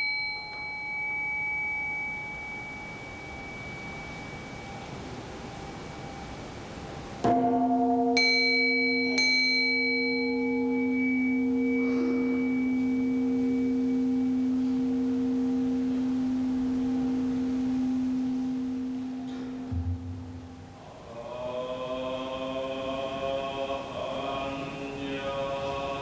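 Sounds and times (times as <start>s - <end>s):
small high-pitched bell: 0.0s - 6.4s, 8.2s - 19.3s
large bowl bell ringing: 0.0s - 20.8s.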